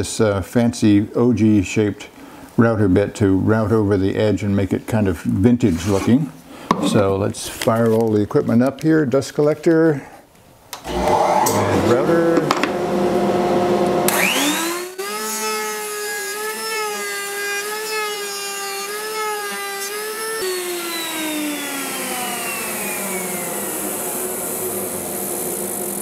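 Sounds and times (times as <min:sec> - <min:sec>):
router whine: 0:10.8 - 0:26.0
dust collector hum: 0:10.9 - 0:26.0.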